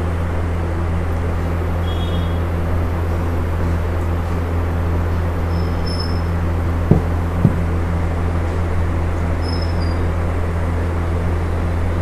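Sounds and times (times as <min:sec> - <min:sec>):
short knocks: 0:06.7 - 0:07.8.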